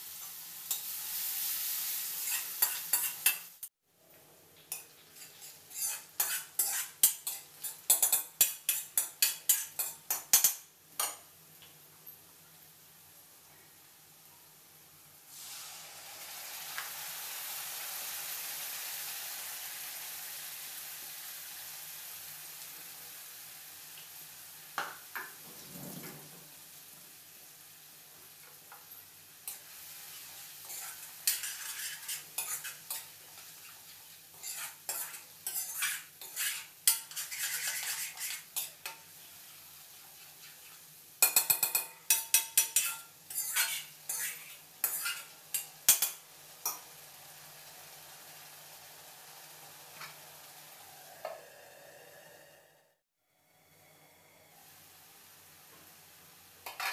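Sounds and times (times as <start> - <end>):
paste sizzling in hot oil: 0.0 - 3.7, 4.6 - 11.3, 15.1 - 25.7, 26.5 - 52.4
spoon scraping and knocking pan: 2.2 - 3.6, 4.7 - 11.3, 28.4 - 46.9, 56.6 - 56.9.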